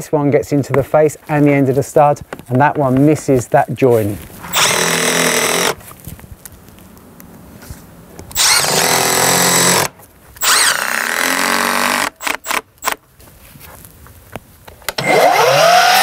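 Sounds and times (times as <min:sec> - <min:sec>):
cordless driver whining: 0:04.5 - 0:05.8, 0:08.3 - 0:13.0, 0:14.9 - 0:16.0.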